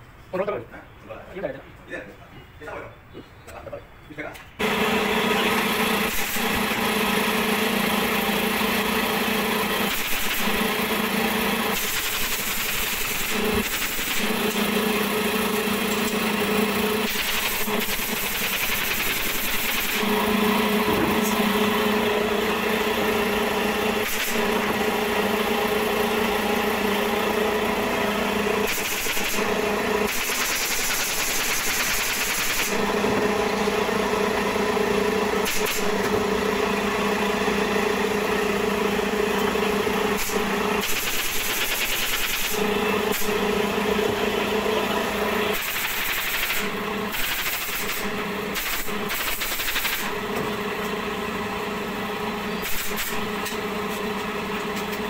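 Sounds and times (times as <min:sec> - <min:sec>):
air compressor humming: 0:04.5 - 0:55.0
pneumatic stapler clicks: 0:35.4 - 0:36.2, 0:40.2 - 0:43.3, 0:45.5 - 0:50.1, 0:52.6 - 0:53.6.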